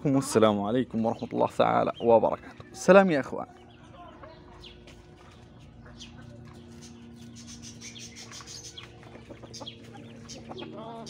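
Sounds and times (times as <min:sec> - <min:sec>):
ducklings peeping: 0:01.0 - 0:11.0
hen clucking: 0:04.0 - 0:11.0.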